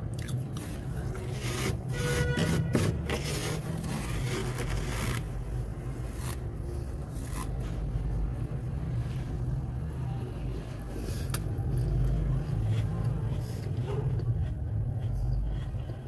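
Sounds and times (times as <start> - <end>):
fingers scraping freezer frost: 0.6 - 7.7.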